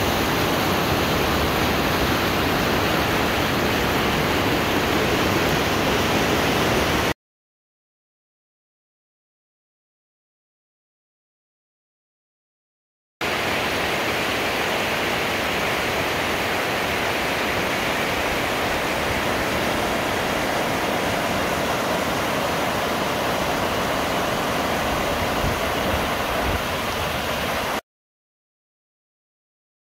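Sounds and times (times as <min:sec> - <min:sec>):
river water rushing over weir: 0:00.0 - 0:07.1, 0:13.2 - 0:27.8.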